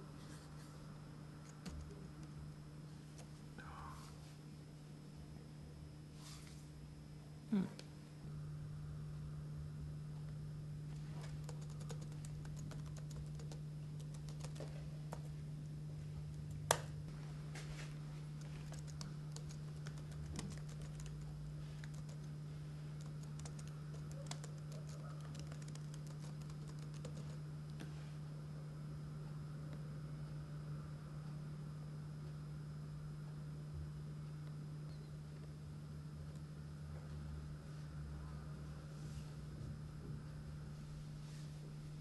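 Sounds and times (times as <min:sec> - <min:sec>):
steady low hum: 0:00.0 - 0:42.0
laptop keyboard typing: 0:11.2 - 0:15.3, 0:18.4 - 0:27.4.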